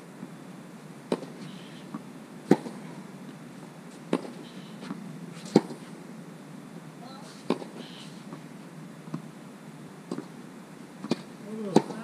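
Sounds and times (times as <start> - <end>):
tennis ball bouncing on court: 1.1 - 1.3, 1.9 - 2.8, 4.1 - 5.9, 7.5 - 8.4, 10.1 - 10.3, 11.0 - 12.0
tennis racket hitting ball: 2.5 - 2.8, 4.1 - 4.4, 5.5 - 5.9, 7.4 - 7.8, 11.0 - 12.0.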